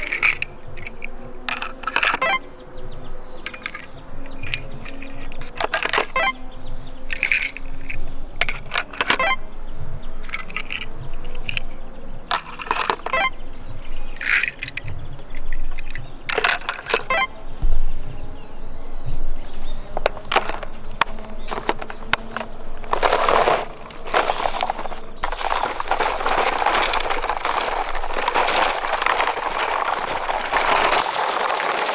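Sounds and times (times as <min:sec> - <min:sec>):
toy cars clicking on plastic: 0:00.0 - 0:02.4, 0:03.4 - 0:06.3, 0:07.1 - 0:09.4, 0:10.2 - 0:13.3, 0:14.2 - 0:17.3, 0:20.0 - 0:31.9
rustling scrape: 0:19.9 - 0:31.9.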